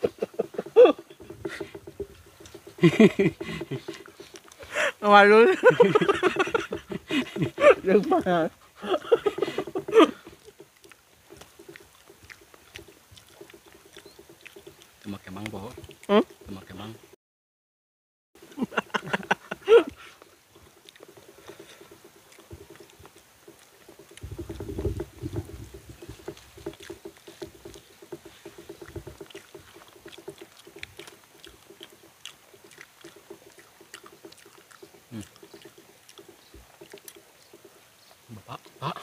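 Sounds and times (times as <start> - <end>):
people chewing: 0.0 - 17.1, 18.4 - 39.0
small crackles and clicks: 9.1 - 16.8, 20.0 - 38.9.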